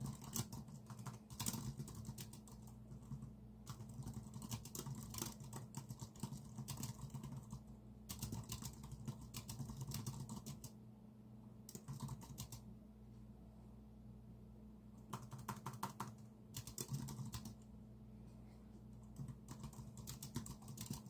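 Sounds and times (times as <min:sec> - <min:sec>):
typing on computer keyboard: 0:00.0 - 0:10.8, 0:11.7 - 0:12.6, 0:15.0 - 0:17.6, 0:19.0 - 0:21.0.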